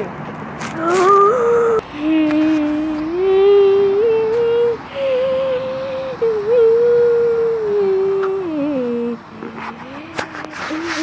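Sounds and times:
person humming long notes: 0.8s - 9.2s.

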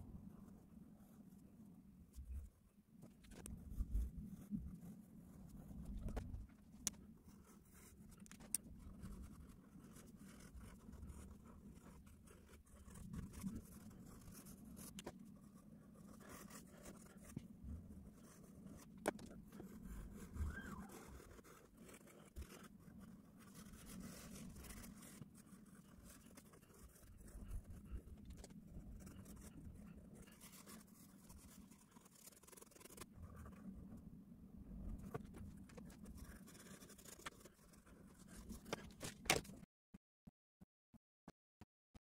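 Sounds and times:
pens scratching on paper: 16.0s - 17.4s, 18.1s - 33.6s, 34.9s - 39.5s.

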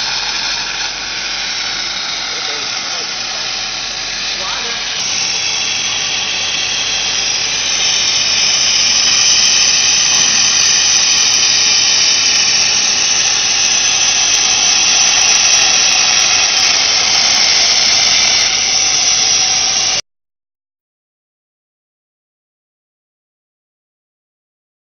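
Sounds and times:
laser welding machine hiss: 0.0s - 20.0s.

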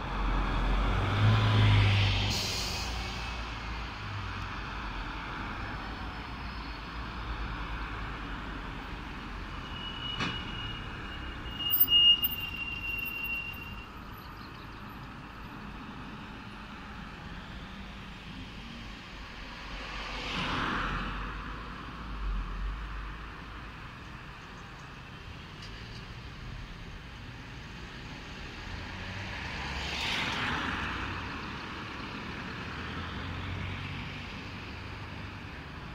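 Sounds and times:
passing vehicles: 0.0s - 35.9s.

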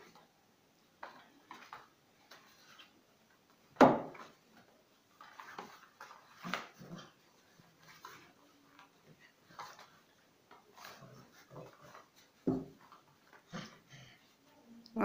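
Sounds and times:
dogs playing: 4.2s - 14.5s.

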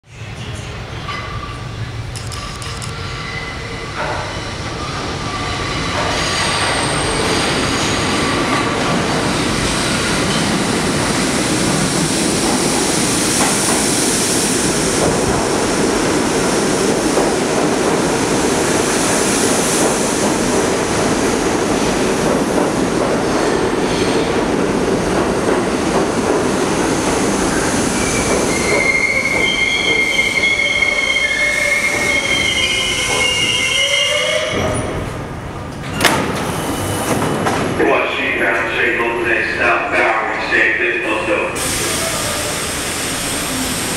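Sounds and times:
subway train rumbling: 0.0s - 43.9s
train wheels squealing: 2.4s - 8.3s, 27.6s - 34.9s.

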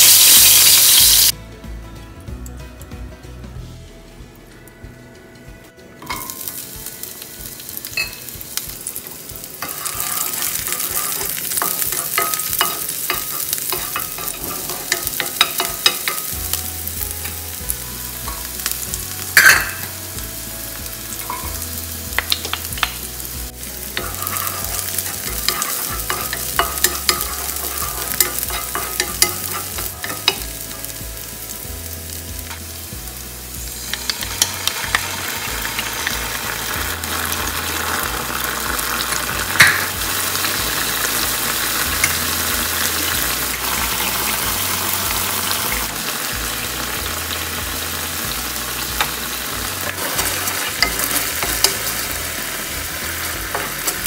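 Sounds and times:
onion sizzling in hot oil: 0.0s - 1.4s, 6.0s - 54.0s
wooden spoon stirring: 23.9s - 30.5s.

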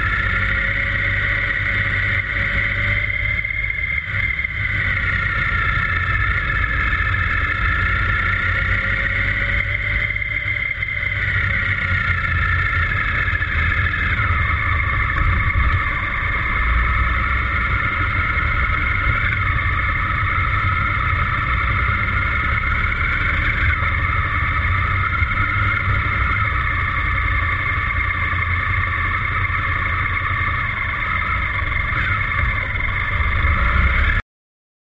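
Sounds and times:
motorcycle engine running: 0.0s - 34.2s
wind rumble on microphone: 10.9s - 34.2s.

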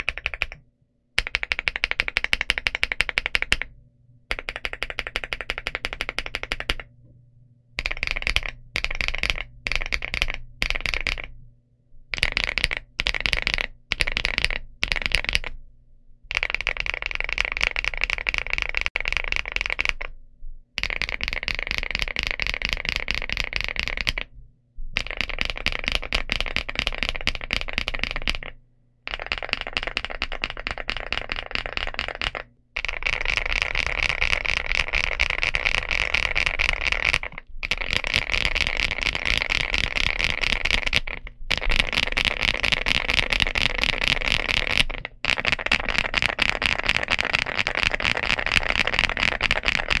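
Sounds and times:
fast typing on mechanical keyboard: 0.0s - 0.6s, 1.2s - 3.7s, 4.3s - 6.9s, 7.8s - 11.4s, 12.2s - 15.5s, 16.3s - 20.1s, 20.8s - 24.3s, 25.0s - 50.0s.

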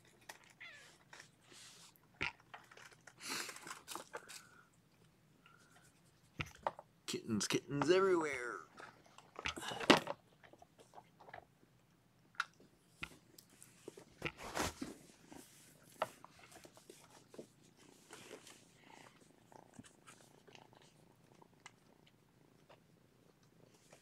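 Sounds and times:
rustles and bumps: 13.9s - 18.6s
cat purring: 15.0s - 24.0s.

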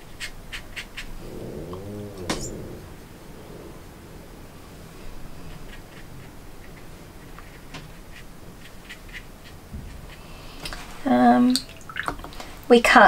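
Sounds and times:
brush scratching on paper: 4.7s - 10.4s.

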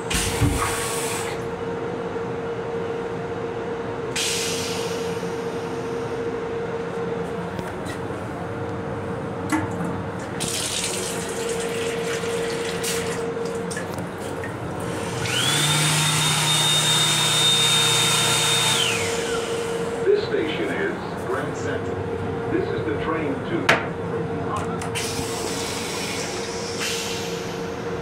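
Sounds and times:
train hum: 1.3s - 10.5s, 18.8s - 28.0s
faucet running into basin: 10.4s - 13.6s
hand dryer blowing: 14.8s - 20.0s.

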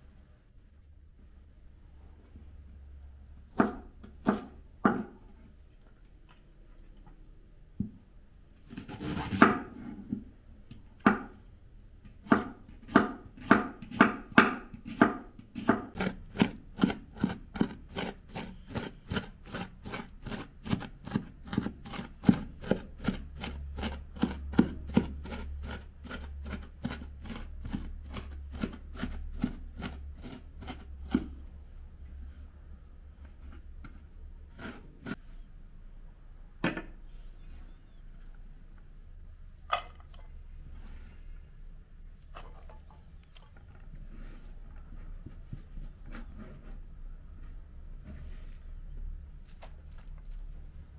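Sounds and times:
knife chopping on wooden board: 3.6s - 5.2s, 12.2s - 31.3s.

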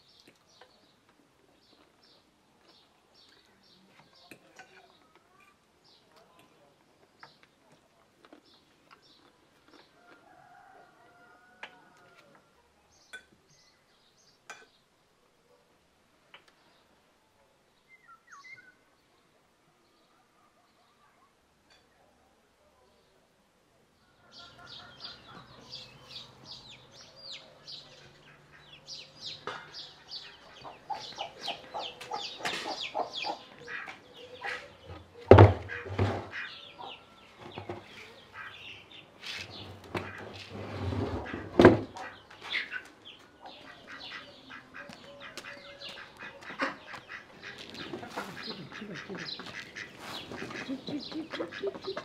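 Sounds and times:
small birds chirping: 0.0s - 10.2s, 17.7s - 21.1s, 23.9s - 40.5s, 41.3s - 52.0s
fowl clucking: 41.2s - 52.0s.

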